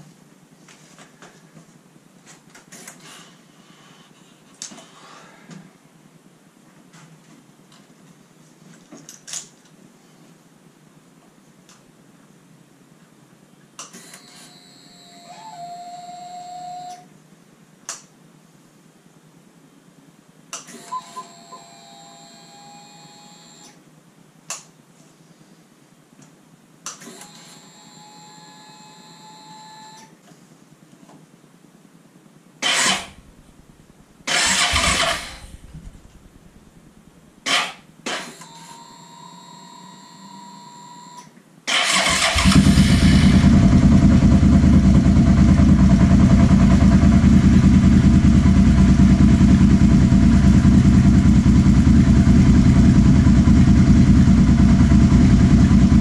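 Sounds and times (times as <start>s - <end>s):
electric starter whining: 32.6s - 37.7s, 41.7s - 56.0s
motorcycle engine firing briefly: 34.3s - 36.3s
motorcycle engine running: 34.4s - 36.9s, 42.4s - 56.0s.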